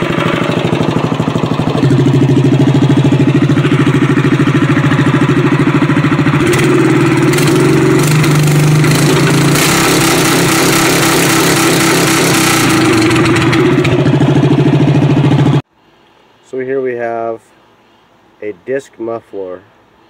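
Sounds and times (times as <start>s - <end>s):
engine with pulsing exhaust: 0.0s - 15.7s.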